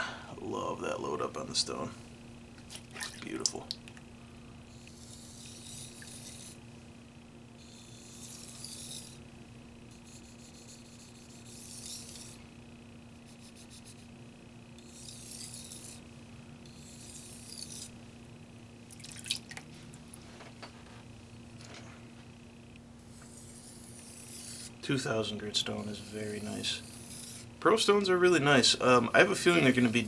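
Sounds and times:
faint steady hum: 0.0s - 30.0s
knife scraping on whetstone: 4.7s - 6.6s, 7.6s - 9.2s, 10.0s - 12.4s, 14.8s - 16.0s, 16.7s - 17.9s, 23.1s - 24.8s, 25.5s - 27.5s.

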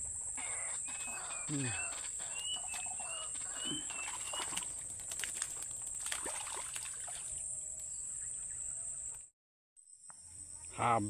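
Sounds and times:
bird chirps: 0.2s - 4.9s, 7.2s - 9.2s
water splashing and sloshing: 0.9s - 7.5s.

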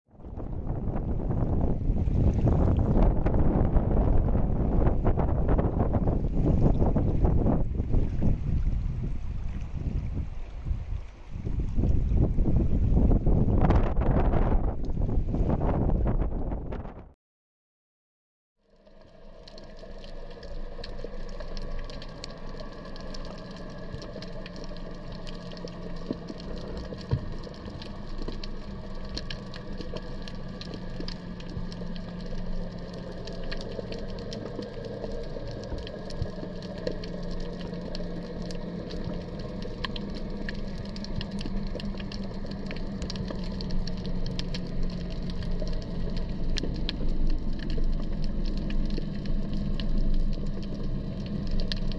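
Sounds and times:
low underwater hum: 0.1s - 16.9s, 18.6s - 51.9s
underwater crackling and clicking: 18.6s - 51.9s.

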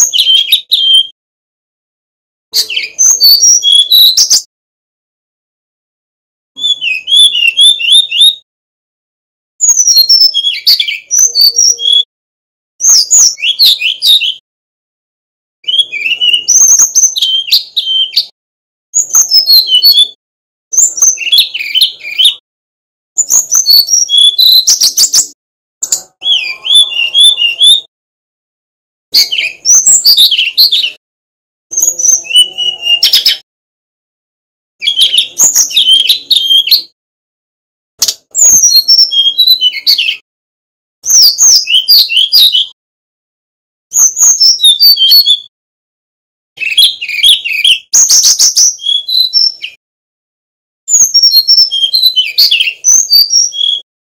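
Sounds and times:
bird singing whistled notes: 0.0s - 1.2s, 2.6s - 4.5s, 6.6s - 8.4s, 9.6s - 12.1s, 12.8s - 14.4s, 15.6s - 18.4s, 19.0s - 22.4s, 23.2s - 27.9s, 29.1s - 31.0s, 31.7s - 33.4s, 34.8s - 37.0s, 38.3s - 40.2s, 41.0s - 42.8s, 43.9s - 45.5s, 46.6s - 49.8s, 50.9s - 53.9s.

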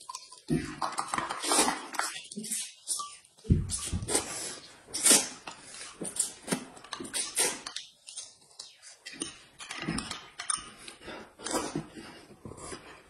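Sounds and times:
utensils clinking on dishes: 9.0s - 11.9s.

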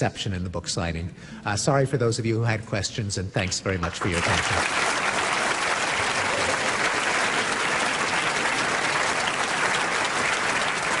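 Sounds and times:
audience applauding: 3.7s - 11.0s.

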